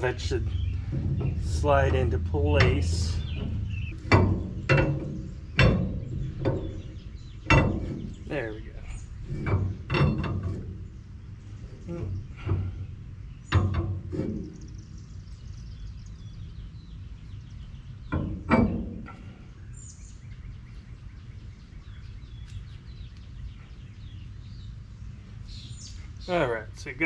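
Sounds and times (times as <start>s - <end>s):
metal knocks: 0.0s - 15.0s, 18.0s - 19.4s
birds chirping: 0.0s - 27.0s
steady low hum: 0.0s - 27.0s.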